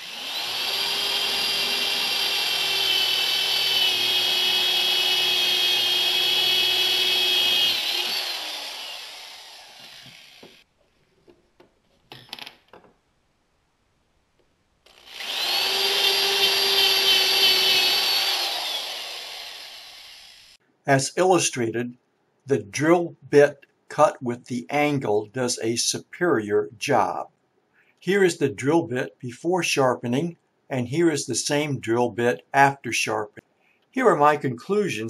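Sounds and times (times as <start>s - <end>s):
electric drill boring into wood: 0.0s - 10.6s, 14.9s - 20.6s.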